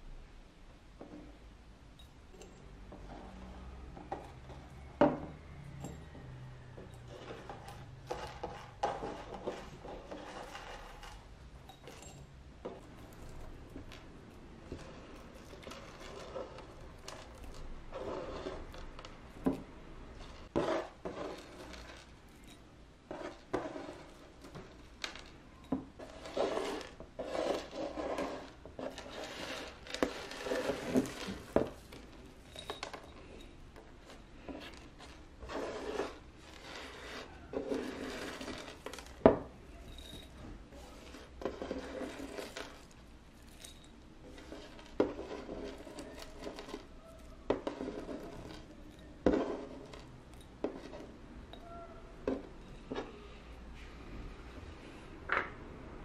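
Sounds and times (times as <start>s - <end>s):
kitchenware rubbing and scraping: 1.0s - 55.6s
kitchenware clinking and knocking: 2.0s - 27.1s, 37.5s - 53.2s, 55.3s - 55.7s.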